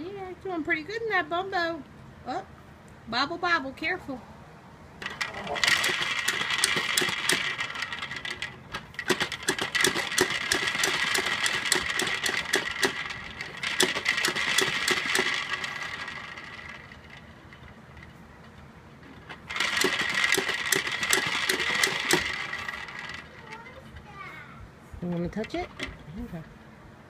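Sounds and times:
spinning top toy clicking and rattling: 0:05.0 - 0:24.1, 0:25.1 - 0:26.2
spinning top whirring: 0:05.0 - 0:24.1.

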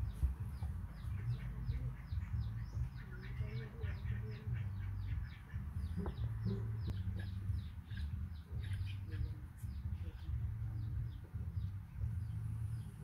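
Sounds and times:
small birds chirping: 0:00.0 - 0:13.0
low rumble: 0:05.0 - 0:13.0.

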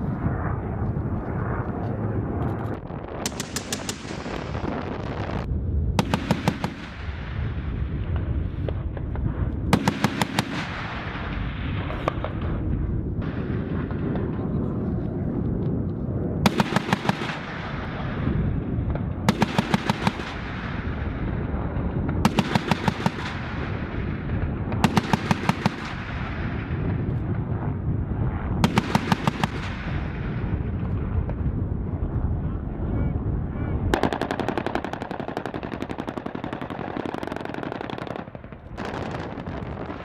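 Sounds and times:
helicopter noise: 0:00.0 - 0:06.8
gatling cannon rapid fire: 0:03.2 - 0:05.4, 0:06.0 - 0:07.7, 0:09.7 - 0:12.3, 0:16.4 - 0:18.2, 0:19.3 - 0:21.0, 0:22.1 - 0:26.9, 0:28.6 - 0:30.5, 0:33.9 - 0:40.0.

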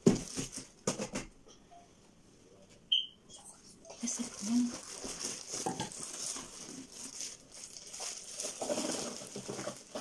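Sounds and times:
plastic bag crinkling: 0:00.0 - 0:00.8, 0:03.9 - 0:10.0.

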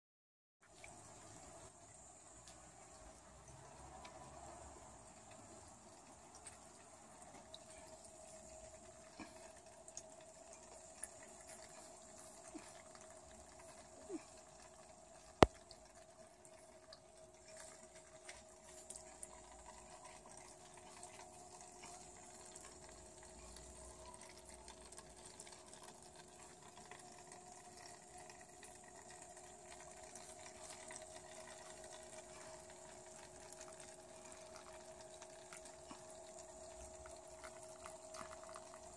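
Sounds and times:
faint steady tone: 0:00.6 - 0:38.9
water trickling and dripping: 0:00.6 - 0:38.9.

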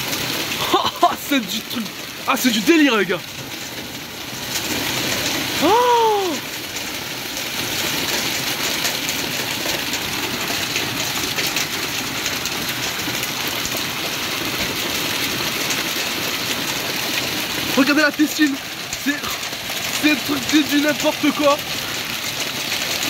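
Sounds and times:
hailstones pelting ground: 0:00.0 - 0:23.0
vocal ooh: 0:05.6 - 0:06.5.

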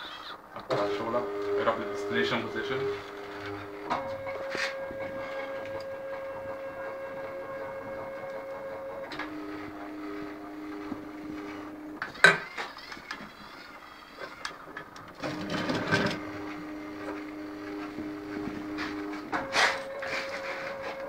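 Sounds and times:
stepper motors humming: 0:00.4 - 0:21.0.

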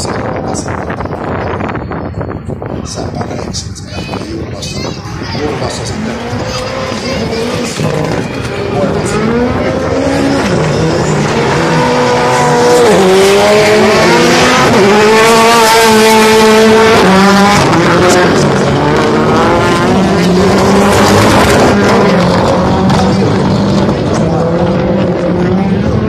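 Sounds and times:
race car engine revving: 0:05.2 - 0:26.0.

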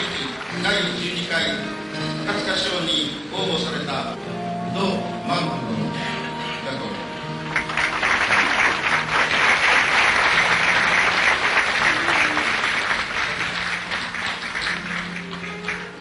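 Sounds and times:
audience applauding: 0:00.0 - 0:01.6, 0:07.4 - 0:16.0
soft music: 0:00.0 - 0:16.0.

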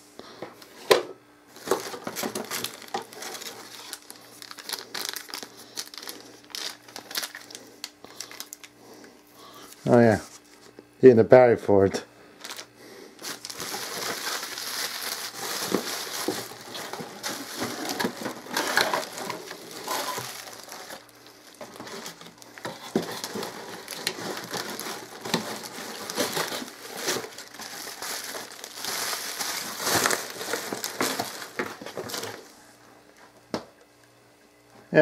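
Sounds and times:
plastic wrap crinkling: 0:01.5 - 0:08.8, 0:12.4 - 0:32.5.

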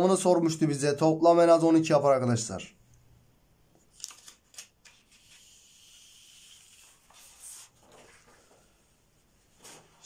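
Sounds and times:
paper sliding on a desk: 0:05.1 - 0:10.0.

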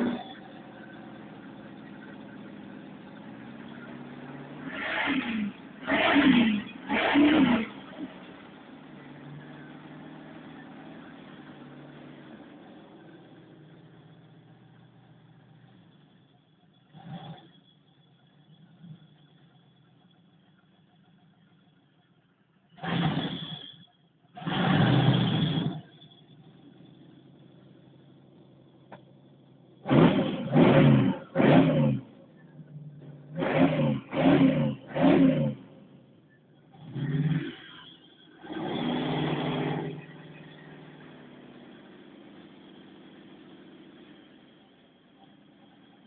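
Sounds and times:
car engine throttle blip and idle: 0:00.0 - 0:46.0
click: 0:28.9 - 0:29.1.

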